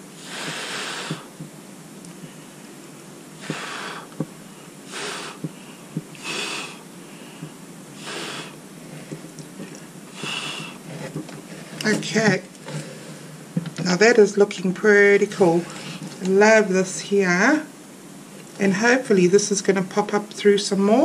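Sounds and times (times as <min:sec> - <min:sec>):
person blowing puffs of air: 0:00.0 - 0:01.4, 0:03.4 - 0:09.3, 0:10.1 - 0:11.8.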